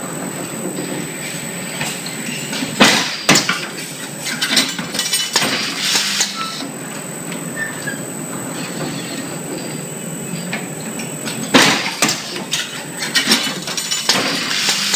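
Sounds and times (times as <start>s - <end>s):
machine running noise: 0.0s - 14.9s
welding machine clattering: 1.8s - 6.6s, 11.2s - 14.9s.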